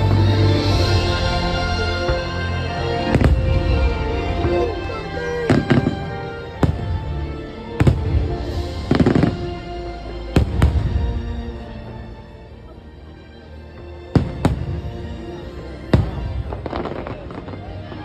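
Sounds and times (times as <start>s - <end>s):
loud music: 0.0s - 12.6s
fireworks bangs: 7.8s - 9.5s, 15.9s - 17.8s.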